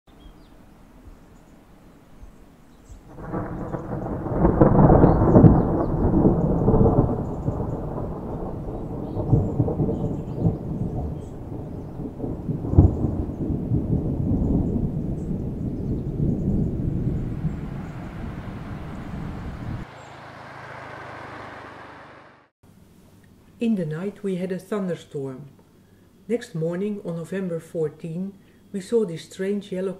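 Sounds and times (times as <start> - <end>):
thunder clap: 3.1 - 20.0
thunder rumbling: 3.1 - 21.8.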